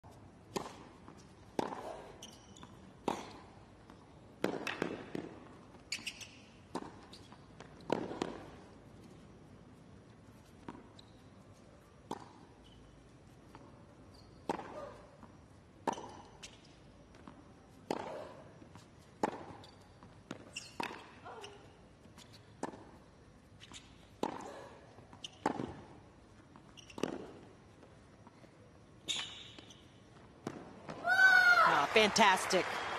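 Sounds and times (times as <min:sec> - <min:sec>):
tennis ball hit by racquet: 0:00.5 - 0:01.9, 0:04.4 - 0:05.5, 0:07.6 - 0:08.7, 0:14.4 - 0:14.8, 0:17.8 - 0:18.2, 0:19.2 - 0:19.6, 0:25.3 - 0:26.0, 0:27.0 - 0:27.4
tennis ball bouncing: 0:00.5 - 0:09.2, 0:10.5 - 0:21.2, 0:22.1 - 0:28.5, 0:29.1 - 0:31.0.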